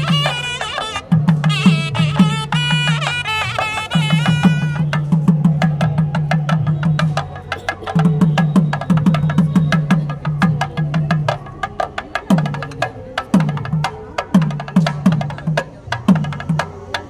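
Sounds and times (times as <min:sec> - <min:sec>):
pitched melody: 0:00.0 - 0:05.1
fast dry clicking percussion: 0:00.0 - 0:17.0.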